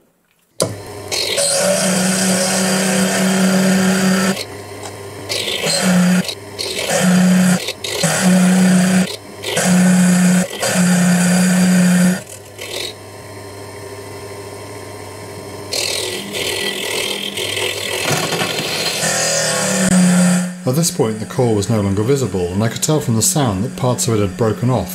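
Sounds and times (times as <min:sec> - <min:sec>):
drill grinding into stone: 0:00.6 - 0:04.5, 0:05.3 - 0:13.0, 0:15.7 - 0:20.6
mill motor hum: 0:00.6 - 0:24.9.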